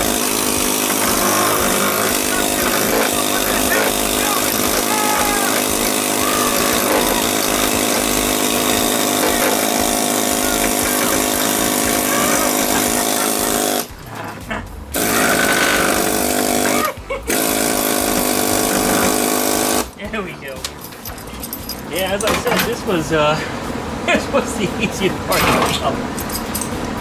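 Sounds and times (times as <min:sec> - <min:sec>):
air chisel hammering sheet steel: 0:00.0 - 0:13.9, 0:15.0 - 0:19.9.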